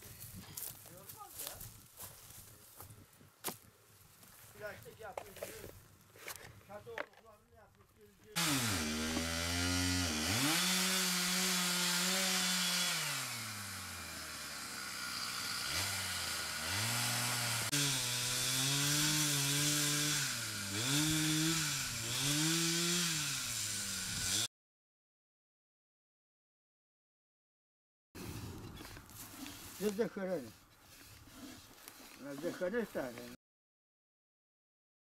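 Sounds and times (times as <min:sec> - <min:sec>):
chainsaw revving: 0:08.4 - 0:24.5.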